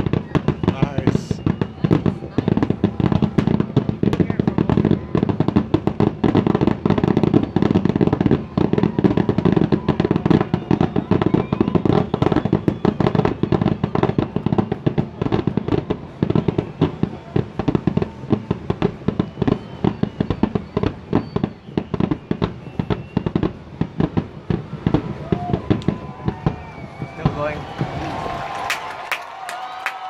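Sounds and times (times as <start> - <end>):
fireworks bangs: 0.0 - 30.0.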